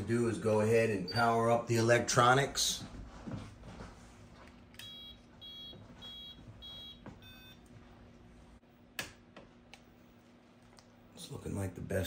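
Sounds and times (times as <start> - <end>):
short electronic beeps: 4.8 - 7.6.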